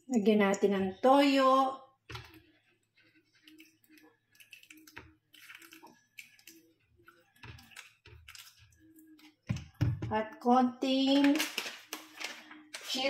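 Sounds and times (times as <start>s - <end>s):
liquid pouring from plastic bottle: 2.1s - 9.8s.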